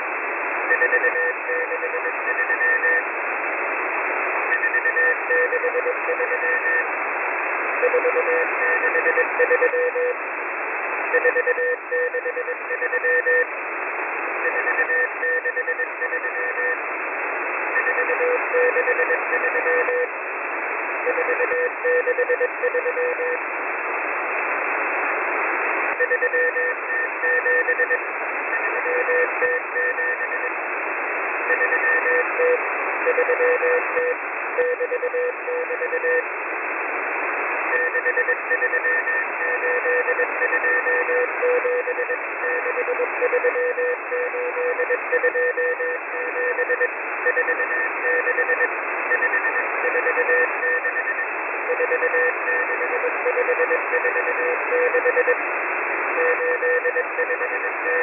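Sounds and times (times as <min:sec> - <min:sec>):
morse code tone: 0:37.7 - 0:55.4.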